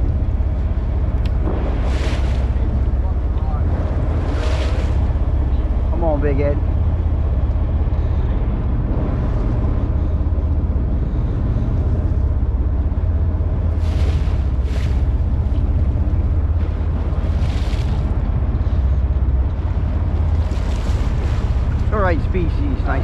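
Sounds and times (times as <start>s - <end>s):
water splashing on boat hull: 0.0s - 6.6s, 13.6s - 23.0s
boat rumble: 0.0s - 23.0s
wind: 0.0s - 23.0s.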